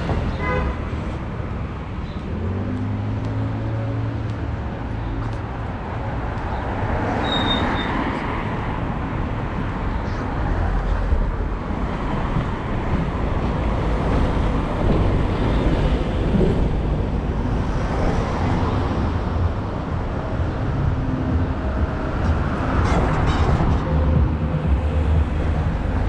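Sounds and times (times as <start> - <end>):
road traffic passing: 0.0 - 26.0.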